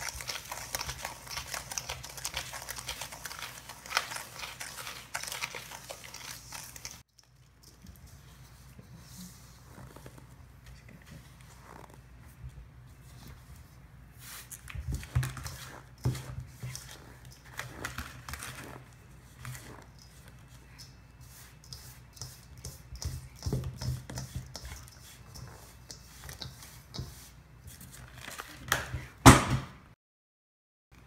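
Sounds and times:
hands mixing powder in metal bowl: 0.0 - 11.9, 12.9 - 29.1.

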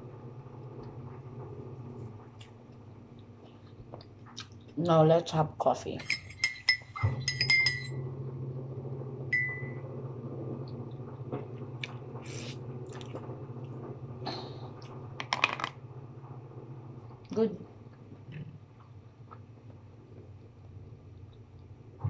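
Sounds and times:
steady low hum: 0.0 - 22.0
teaspoon clinking in mug: 6.0 - 7.9.

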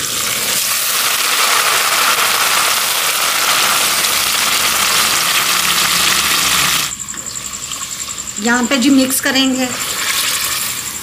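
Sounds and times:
meat sizzling: 0.0 - 6.9, 9.8 - 11.0.

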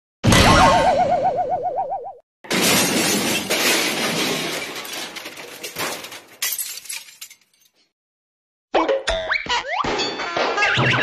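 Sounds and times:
breaking and tinkling glass: 2.5 - 7.9
glass shattering: 2.5 - 7.9.

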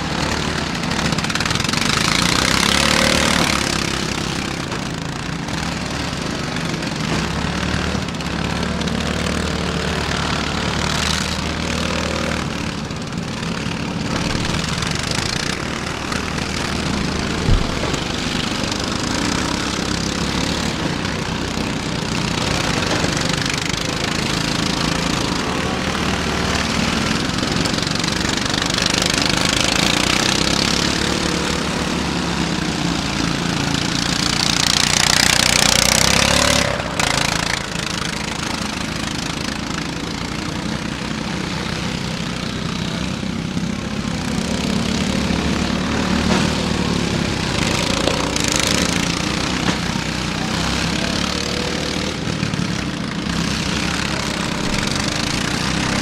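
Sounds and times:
riding lawn mower engines: 0.0 - 56.0
sharp thump: 15.9 - 19.4.

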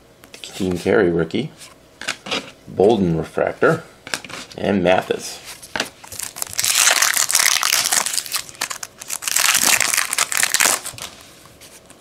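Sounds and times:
foil wrapper crinkling: 6.0 - 11.2.

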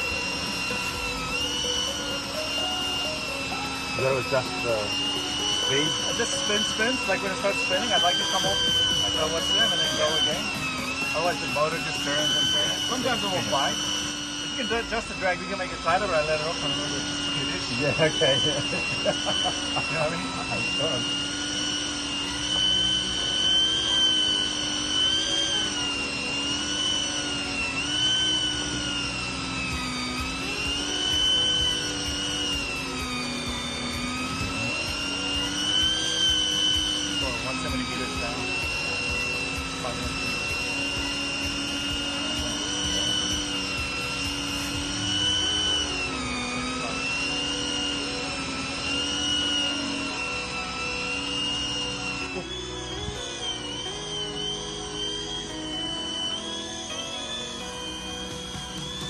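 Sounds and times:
fishing reel motor whine: 0.0 - 59.0.

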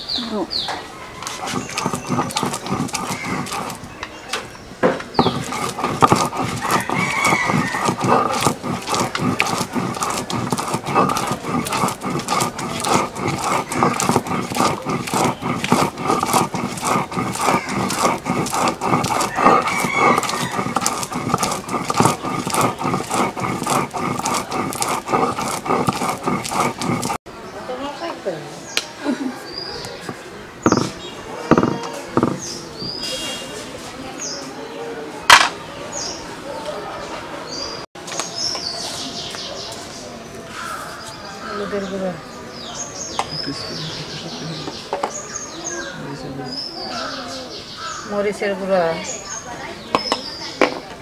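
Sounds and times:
stone grinding on stone: 1.2 - 3.9, 5.2 - 27.2, 29.8 - 32.6.

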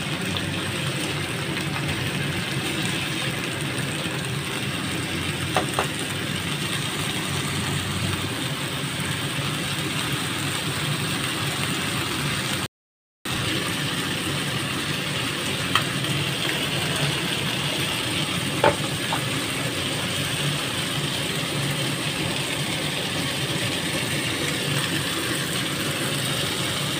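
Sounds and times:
meat and peppers sizzling in pan: 0.0 - 12.7, 13.3 - 26.9.

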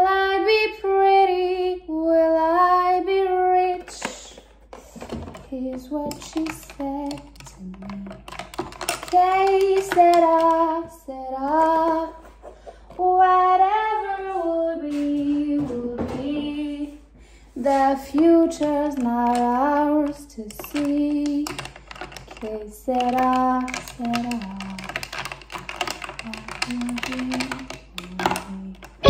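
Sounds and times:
woman singing slowly: 13.0 - 17.0, 26.2 - 28.9.

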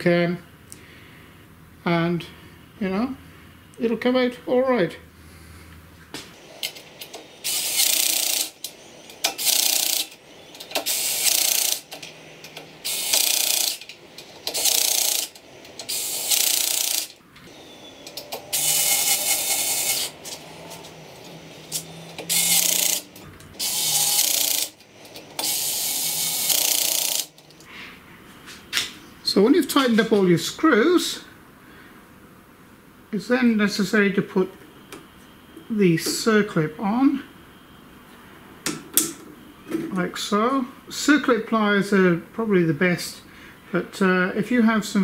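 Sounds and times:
cordless drill driving screws: 7.4 - 12.0, 12.8 - 13.9, 14.5 - 17.2, 18.1 - 20.4, 21.7 - 27.3.

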